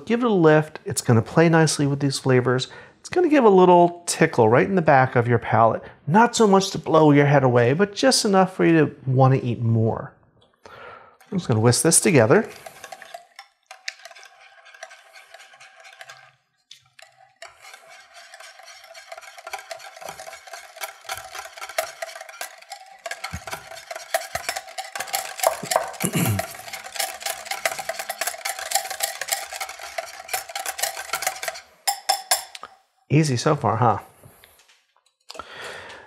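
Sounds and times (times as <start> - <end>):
whisk clicking against glass bowl: 11.2 - 32.7.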